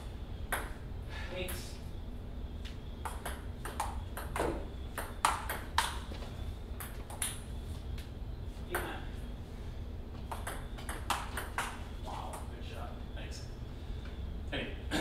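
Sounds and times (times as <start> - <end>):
ping pong ball clicking: 10.3 - 12.5.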